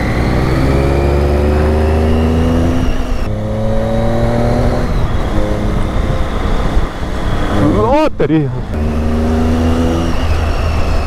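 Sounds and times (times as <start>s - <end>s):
motorcycle engine accelerating hard: 0.0s - 8.0s, 8.6s - 11.0s.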